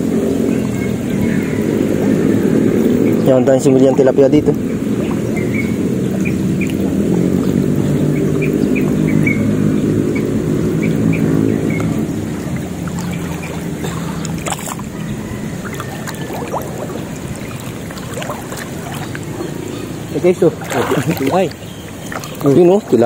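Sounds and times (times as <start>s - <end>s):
motor engine humming: 0.0s - 23.0s.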